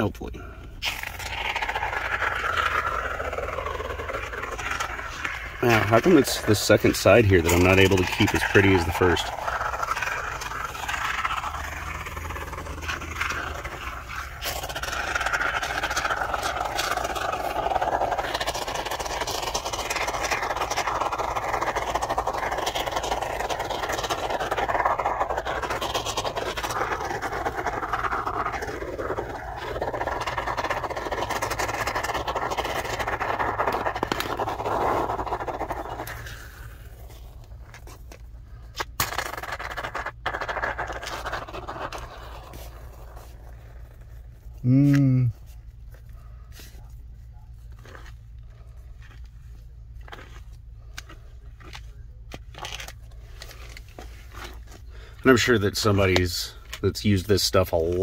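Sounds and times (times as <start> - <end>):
spray foam can hissing: 0.8 - 36.8.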